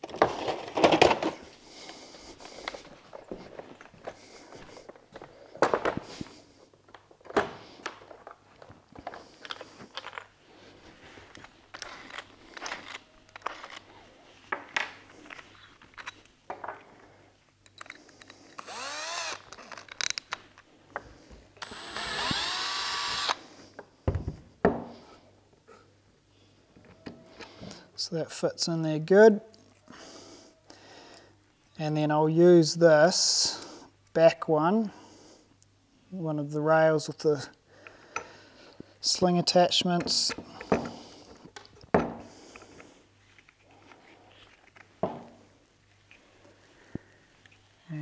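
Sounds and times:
cordless drill whining: 18.5s - 19.8s, 21.6s - 23.4s.

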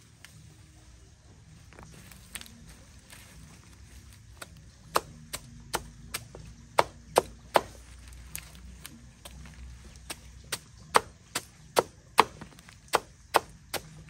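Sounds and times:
chopping strokes on wood: 4.4s - 14.0s.

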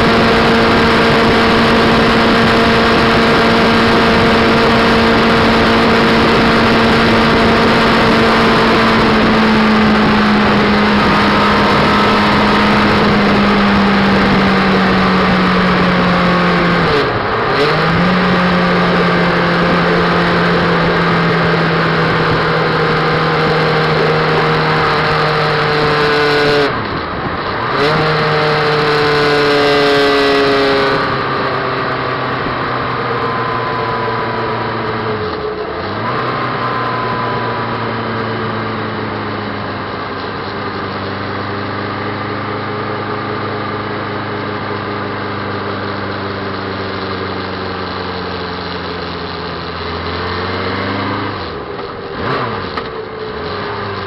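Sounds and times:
wind rush: 0.0s - 35.2s
motorcycle engine: 0.0s - 54.0s.

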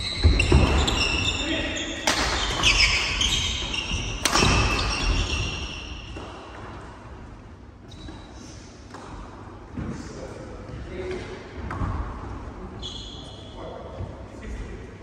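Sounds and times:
shoes squeaking on wooden court: 0.0s - 6.6s, 7.8s - 9.2s, 12.8s - 13.7s
racket smacking shuttlecock: 4.2s - 5.0s.

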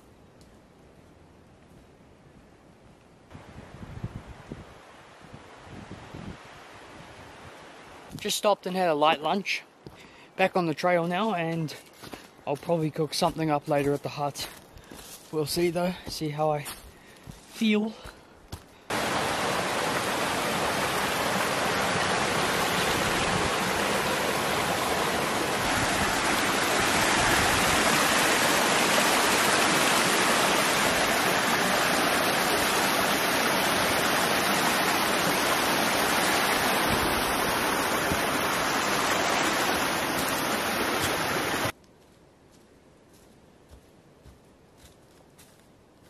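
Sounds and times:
fast-flowing water rushing: 18.9s - 41.7s.

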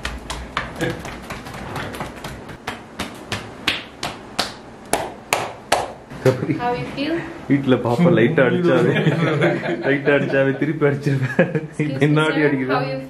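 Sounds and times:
hands slapping a back: 0.0s - 6.0s.

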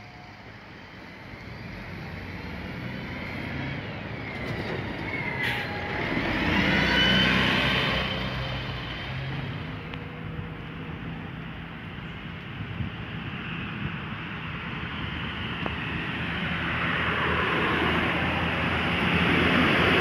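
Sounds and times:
bus driving past: 0.0s - 20.0s.

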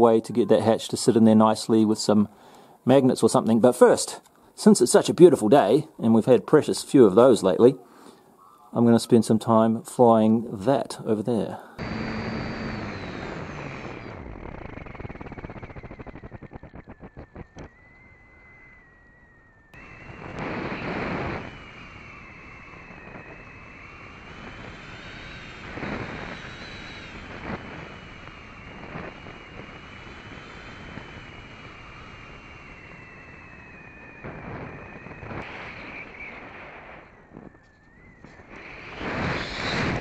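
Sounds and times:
electric motor and propeller whining: 11.7s - 40.0s
wind noise on microphone: 11.8s - 40.0s.

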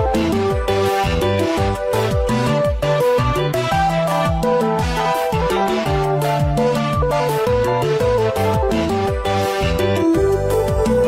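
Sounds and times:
synth melody: 0.0s - 11.0s.

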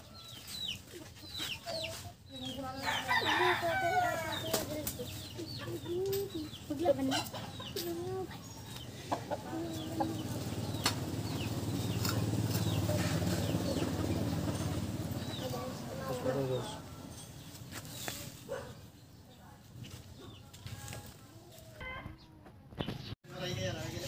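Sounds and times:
chickens clucking: 0.0s - 18.9s.

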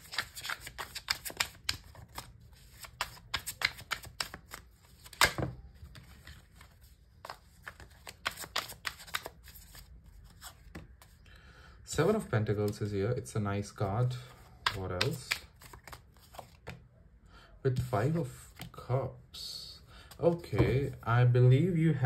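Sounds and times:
cards being shuffled: 0.0s - 11.2s, 14.0s - 16.8s
slap of cards: 5.0s - 5.5s.

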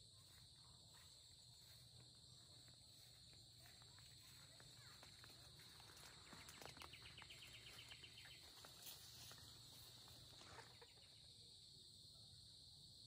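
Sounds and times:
insect drone: 0.0s - 13.0s
footsteps through leaves: 5.2s - 10.6s.

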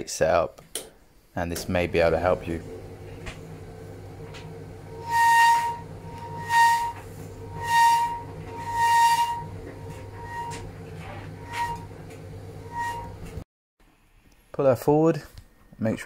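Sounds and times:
tumble dryer humming: 1.4s - 13.4s
high-pitched squeal: 5.0s - 12.0s, 12.6s - 13.3s.

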